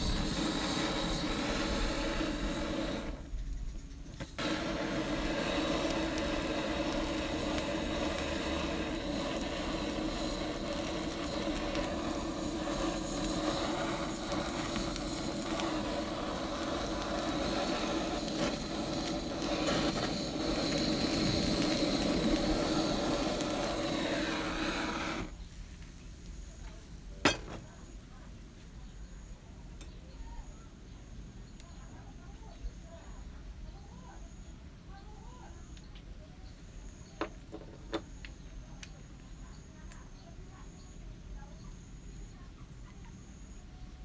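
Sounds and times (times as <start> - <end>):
blowtorch hissing: 0.0 - 30.6.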